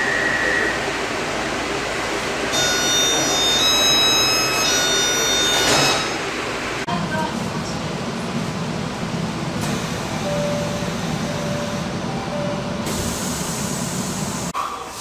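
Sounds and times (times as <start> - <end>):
subway car rumble and hiss: 0.0 - 15.0.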